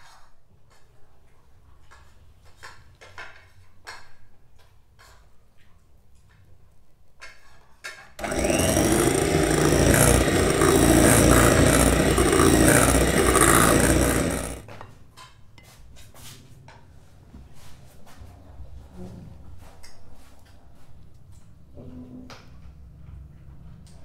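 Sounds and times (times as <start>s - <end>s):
electric hand mixer beating batter: 8.2s - 14.7s.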